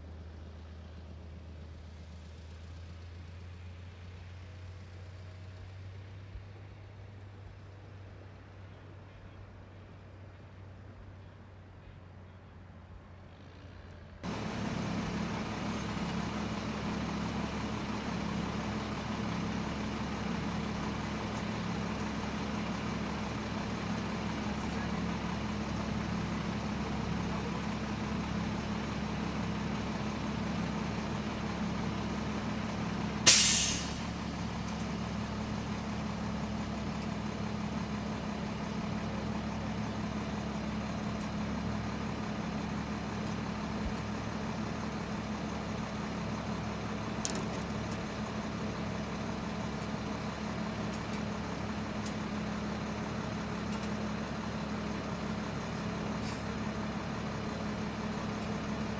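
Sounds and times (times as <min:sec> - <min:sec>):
truck engine idling: 0:00.0 - 0:58.9
air release hiss: 0:33.3 - 0:34.0.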